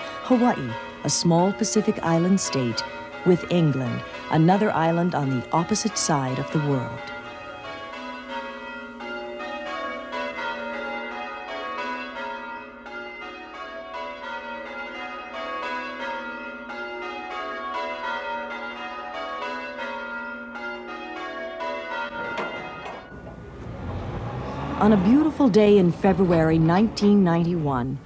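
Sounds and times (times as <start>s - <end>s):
tower bells change ringing: 0.0s - 28.0s.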